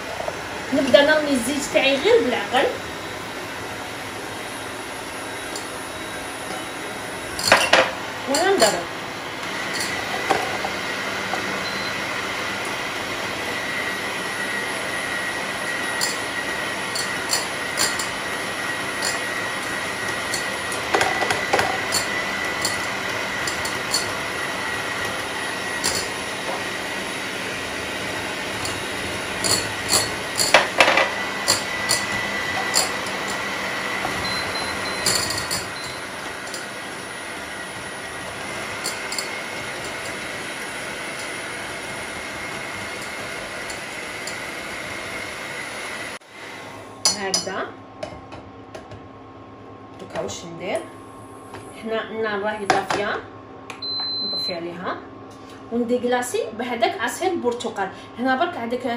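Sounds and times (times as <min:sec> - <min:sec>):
electric hand mixer whining: 0:00.0 - 0:47.0.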